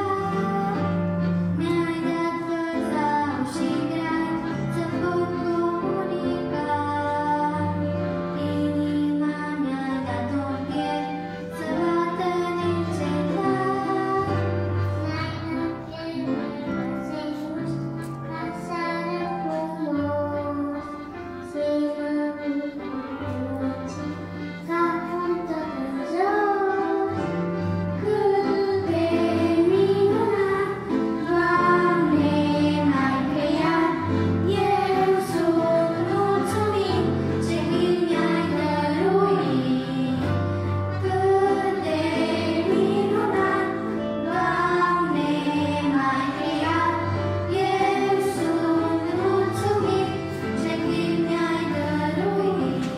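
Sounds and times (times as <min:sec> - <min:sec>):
children singing into microphones: 0:00.0 - 0:52.9
instrumental accompaniment: 0:00.0 - 0:52.9.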